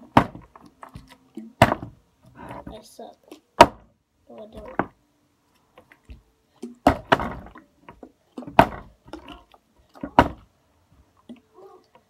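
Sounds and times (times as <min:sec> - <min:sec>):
plastic bottle thudding on wooden table: 0:01.6 - 0:02.0, 0:06.8 - 0:07.6, 0:08.4 - 0:09.0.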